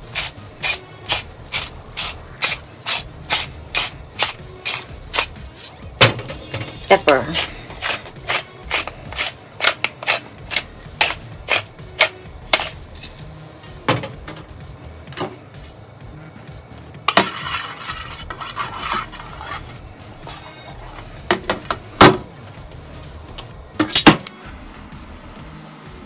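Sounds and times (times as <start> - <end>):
spoon scraping tray: 0.0 - 5.8, 6.6 - 13.4, 17.1 - 21.6
pepper mill grinding clicks: 7.8 - 13.2.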